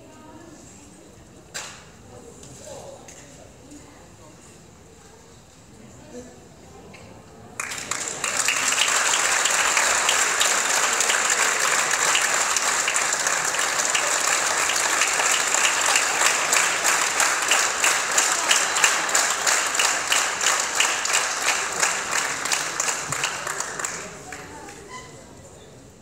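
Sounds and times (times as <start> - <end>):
audience clapping: 7.6 - 25.0.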